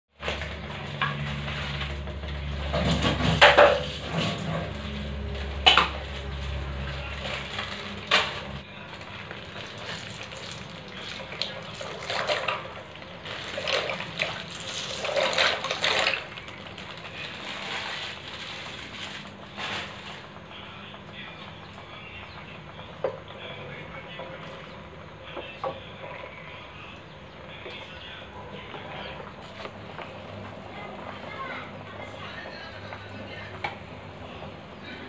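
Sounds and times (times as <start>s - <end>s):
steady low hum: 0.2s - 35.0s
liquid splashing in saucepan: 9.1s - 16.9s.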